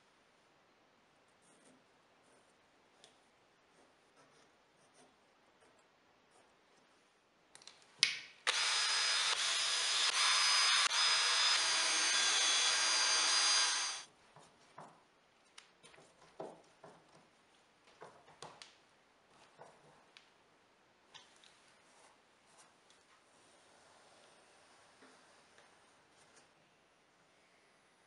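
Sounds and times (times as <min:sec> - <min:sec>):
cordless drill whining: 0:08.5 - 0:14.0.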